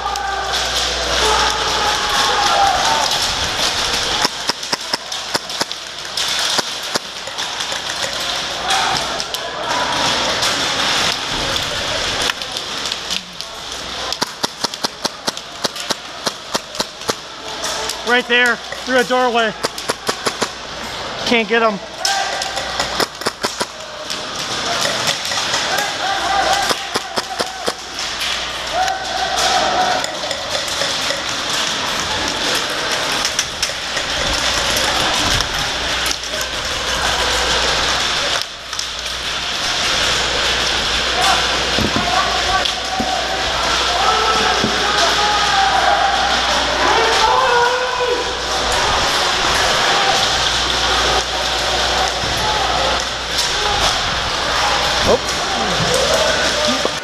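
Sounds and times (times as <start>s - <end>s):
sharp clicks and knocks: 14.1s - 17.2s
airsoft gun firing sharp cracks: 14.2s - 17.2s.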